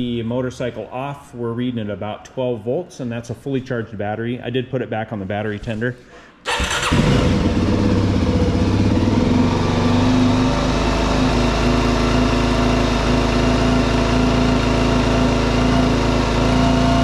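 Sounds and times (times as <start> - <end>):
motorcycle engine starting and idling: 6.4 - 17.0.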